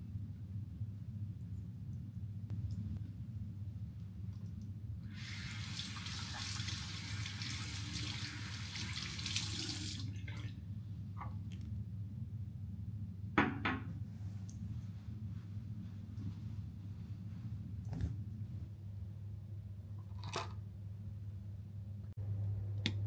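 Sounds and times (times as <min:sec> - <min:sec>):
low room hum: 0:00.0 - 0:23.0.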